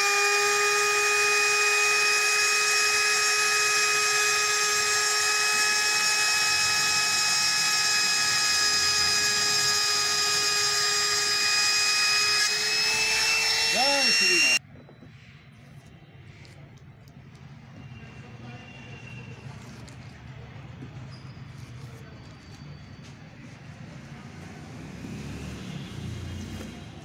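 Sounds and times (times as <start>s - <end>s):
router whining: 0.0s - 14.6s.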